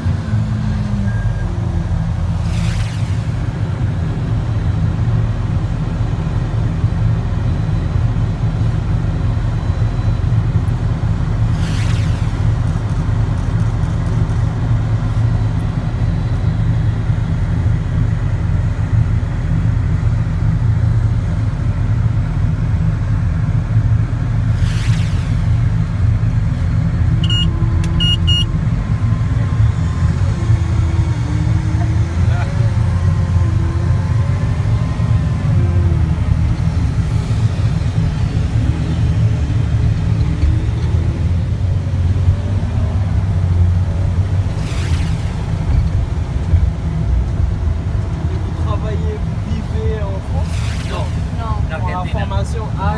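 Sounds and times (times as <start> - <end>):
engine rumbling: 0.0 - 52.9.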